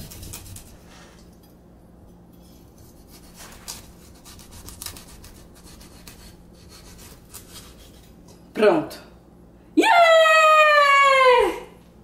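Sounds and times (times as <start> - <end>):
knife scraping through pumpkin: 0.0 - 1.2, 2.4 - 8.2.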